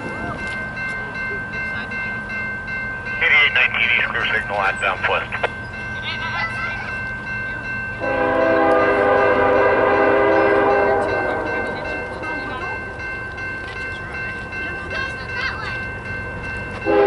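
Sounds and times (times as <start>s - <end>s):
locomotive air horn blast: 8.0s - 11.5s.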